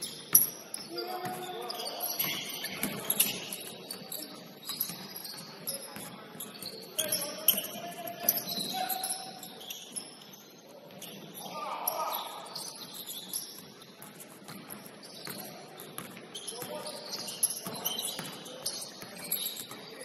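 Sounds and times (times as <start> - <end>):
sneakers squeaking on hardwood: 0.0 - 20.0
basketball dribbling: 14.0 - 19.8.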